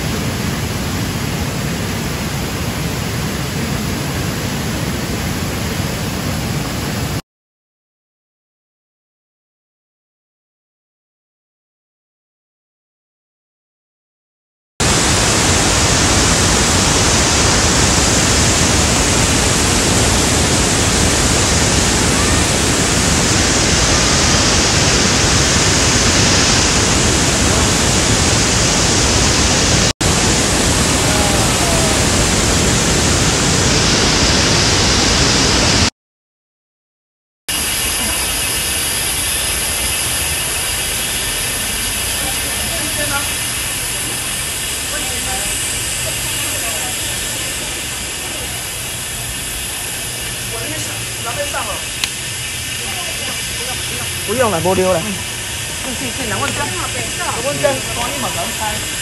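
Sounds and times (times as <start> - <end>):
waterfall rushing: 0.0 - 7.2, 14.8 - 35.9, 37.5 - 59.0.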